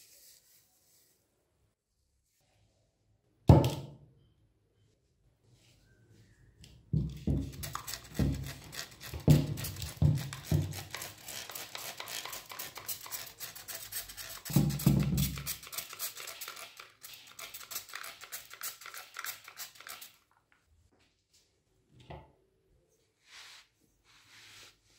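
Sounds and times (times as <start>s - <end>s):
spray bottle spritzing: 7.4s - 20.2s.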